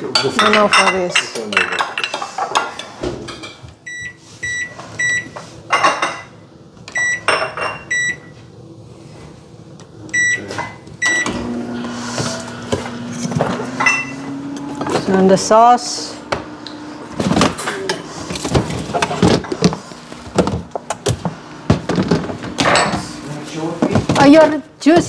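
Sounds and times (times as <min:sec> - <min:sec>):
serving spoons clinking on dishes: 0:00.0 - 0:03.6, 0:13.8 - 0:14.2
microwave oven humming: 0:03.6 - 0:23.8
microwave keypad beeps: 0:03.9 - 0:05.4, 0:06.9 - 0:08.4, 0:10.1 - 0:11.4.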